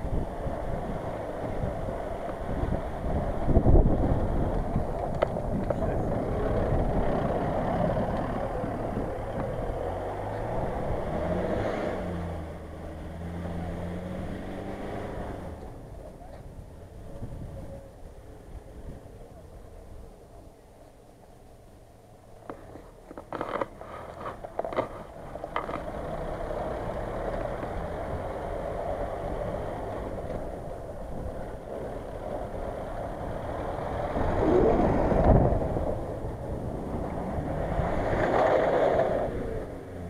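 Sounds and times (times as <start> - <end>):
engine revving: 5.6 - 15.7, 31.2 - 40.0.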